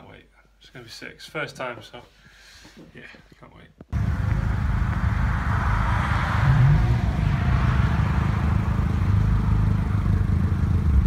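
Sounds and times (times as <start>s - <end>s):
traffic rumble: 3.9s - 11.0s
passing car rushing: 4.0s - 11.0s.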